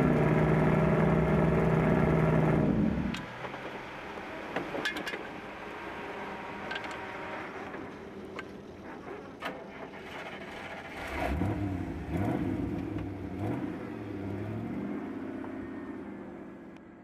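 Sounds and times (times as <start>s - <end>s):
truck engine revving: 10.7s - 15.7s.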